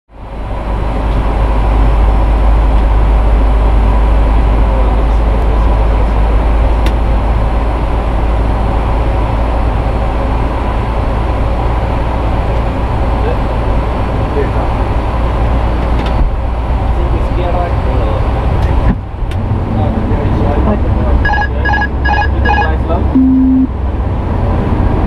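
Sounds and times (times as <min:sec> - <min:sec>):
airliner cockpit rumble: 0:00.1 - 0:25.0
faint steady hum: 0:20.8 - 0:23.8.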